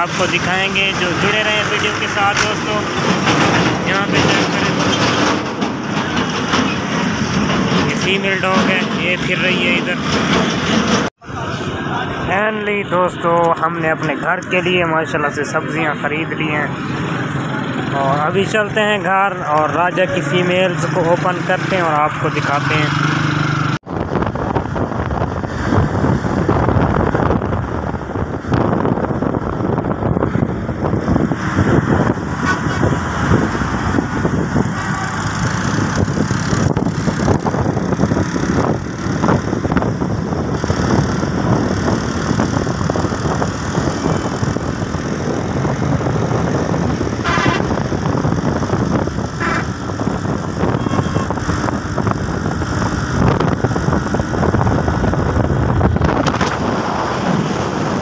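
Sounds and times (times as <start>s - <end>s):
road noise: 0.0s - 58.0s
wind on microphone: 23.8s - 58.0s.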